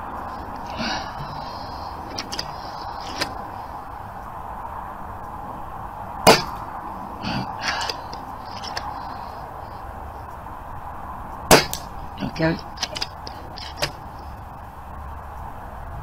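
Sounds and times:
light clicks and knocks: 0.2s - 3.7s, 7.6s - 9.8s, 11.5s - 14.6s
air rifle shot: 0.8s - 3.4s, 6.2s - 6.7s, 11.5s - 12.0s.

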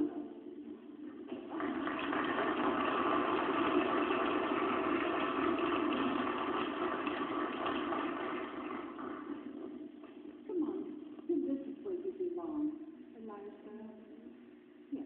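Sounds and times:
audience clapping: 1.1s - 10.2s.

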